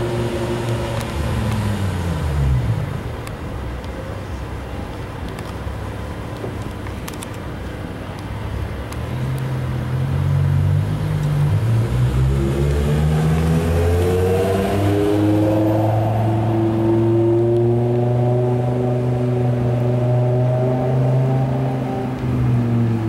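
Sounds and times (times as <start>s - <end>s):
car engine accelerating: 0.0s - 3.3s, 8.8s - 23.0s.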